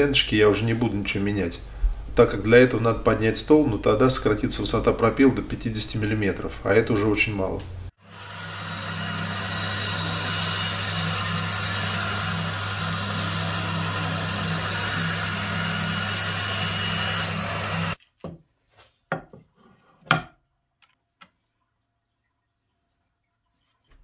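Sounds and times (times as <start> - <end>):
band saw motor hum: 8.0 - 18.0
saw blade cutting wood: 8.0 - 18.0.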